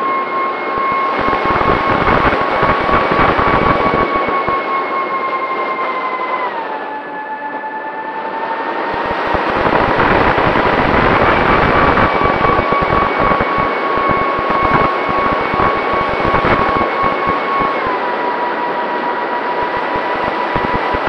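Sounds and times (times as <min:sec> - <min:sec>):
wind buffeting microphone: 0:01.1 - 0:04.6, 0:08.9 - 0:17.9.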